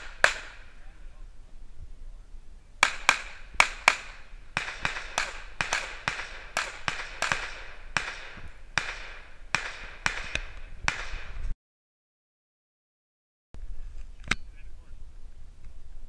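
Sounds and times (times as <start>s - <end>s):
distant gunshots with echo: 0.0s - 0.9s, 2.8s - 11.4s.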